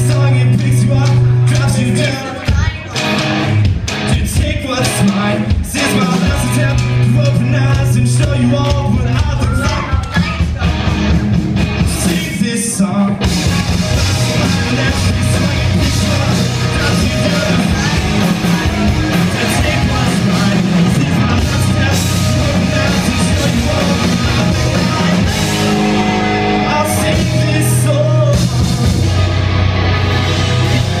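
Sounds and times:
rock band playing live: 0.0s - 31.0s
person singing: 4.0s - 10.8s, 13.9s - 31.0s.

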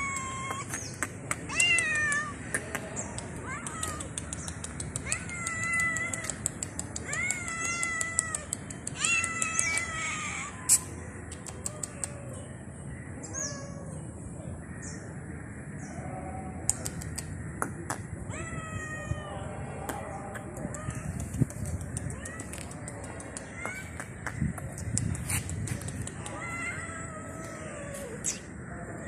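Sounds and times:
sharp clicks: 0.0s - 10.0s, 10.7s - 12.2s, 16.6s - 18.1s, 19.9s - 26.4s
cat meowing: 1.5s - 2.4s, 7.0s - 10.8s, 13.3s - 14.0s, 18.3s - 19.6s, 26.2s - 28.5s.

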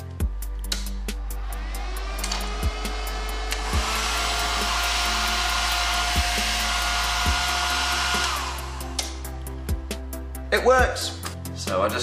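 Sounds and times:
hair dryer fan whine: 1.2s - 9.2s.

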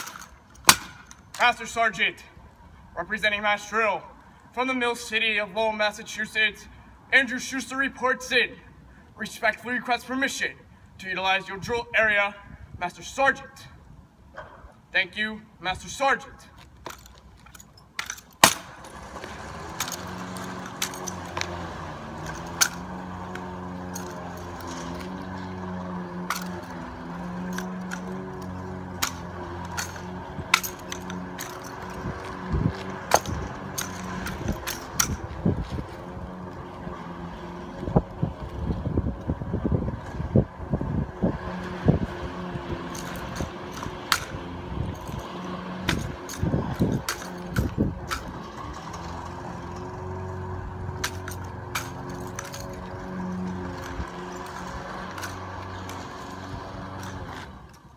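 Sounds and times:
drill rifle slaps and clacks: 0.0s - 1.4s, 16.8s - 18.9s, 45.8s - 48.4s, 51.0s - 52.8s
low engine hum: 18.5s - 57.9s
wind buffeting microphone: 31.8s - 48.6s.

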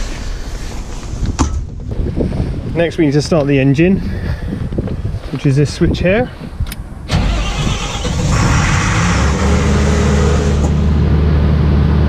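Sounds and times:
generator engine starting and running: 7.1s - 12.0s.

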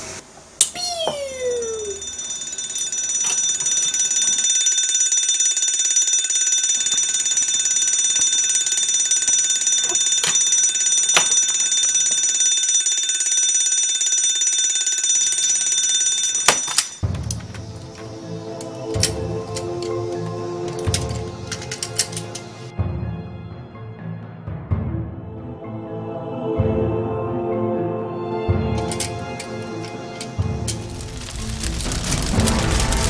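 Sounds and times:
electronic alarm bell ringing: 1.3s - 22.7s.

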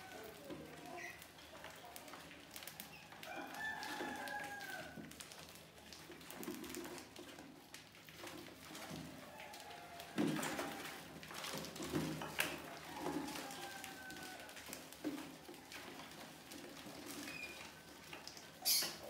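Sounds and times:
rooster crowing: 3.2s - 5.0s, 12.6s - 14.6s.

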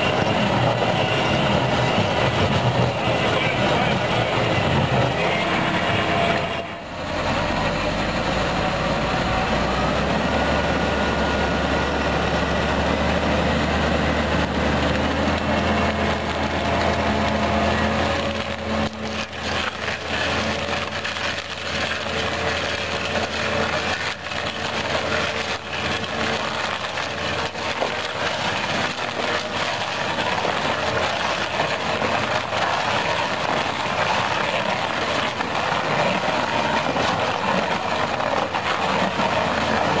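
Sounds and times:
stump grinder cutter chewing wood: 0.0s - 40.0s
tractor engine running under load: 0.0s - 40.0s
wood cracking and splintering: 14.2s - 40.0s
wood chips knocking against machine: 15.4s - 40.0s.

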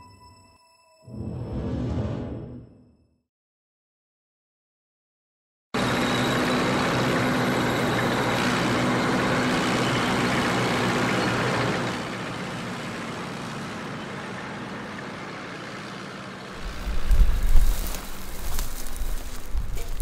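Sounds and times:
vehicle engine running: 5.8s - 20.0s.

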